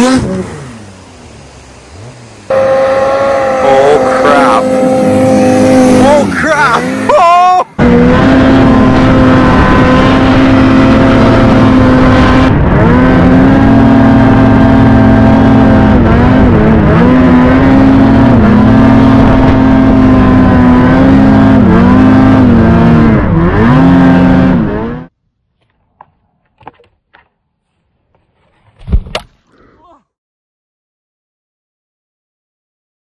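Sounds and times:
snowmobile engine at high revs: 0.0 - 25.1.

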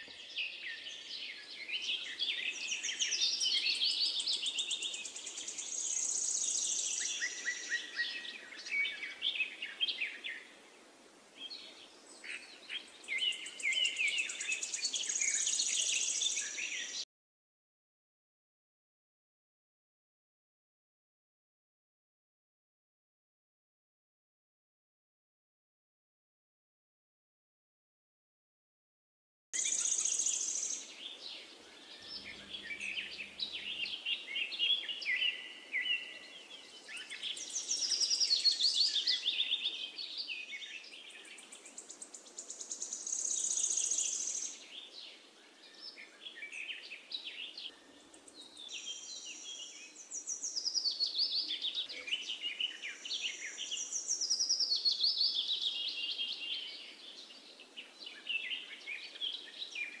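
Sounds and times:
songbirds singing: 0.0 - 17.1, 29.6 - 60.0.

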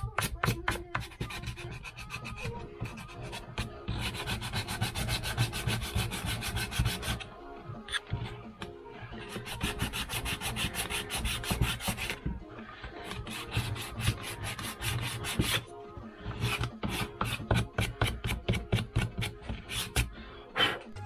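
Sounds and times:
sandpaper rubbing on wood: 1.0 - 7.2, 9.2 - 12.2, 13.0 - 15.6.

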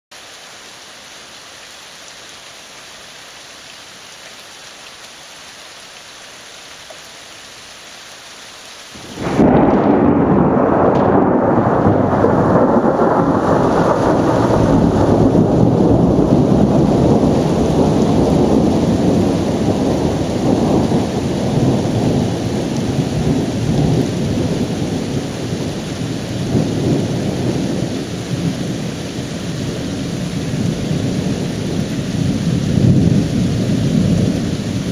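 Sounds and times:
rain hissing: 0.1 - 34.9
thunderclap rumbling: 9.0 - 34.9.

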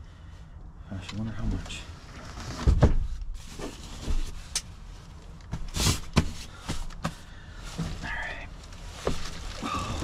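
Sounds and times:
dull thumps and knocks: 5.5 - 7.2.

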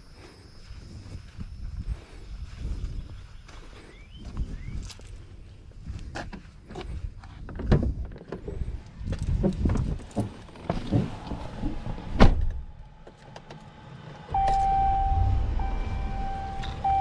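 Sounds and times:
knocks and rustles: 7.4 - 12.6
truck door opening: 9.5 - 12.6
engine starting and running: 10.8 - 17.0
door slammed shut: 12.1 - 12.6
dashboard warning chime: 14.3 - 17.0.

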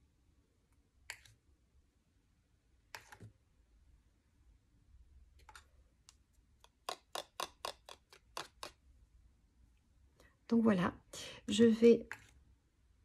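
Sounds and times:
plastic spoon clicking on box: 5.4 - 8.8.

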